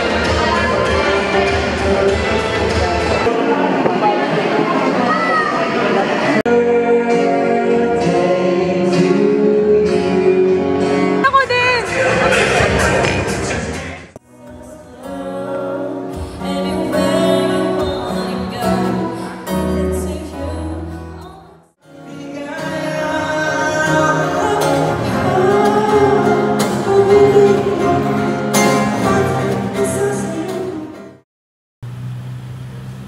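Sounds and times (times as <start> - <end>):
acoustic guitar: 0.0 - 31.2
man singing into a microphone: 6.5 - 11.2, 21.8 - 31.0.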